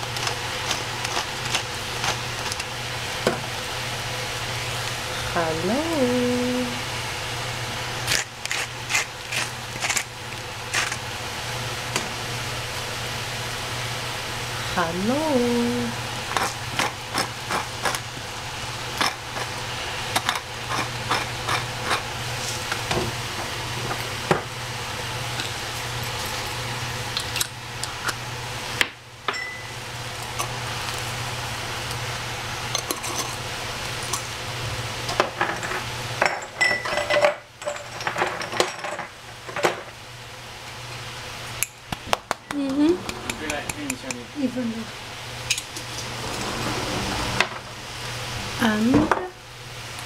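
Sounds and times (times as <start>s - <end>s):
steady low hum: 0.0s - 35.1s
utensils and cookware clinking: 32.7s - 33.4s, 35.1s - 39.8s.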